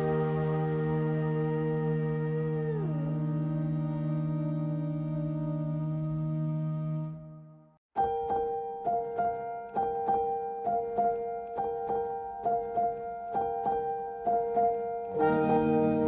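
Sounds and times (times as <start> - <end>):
gentle piano music: 0.0 - 7.0, 8.0 - 16.0.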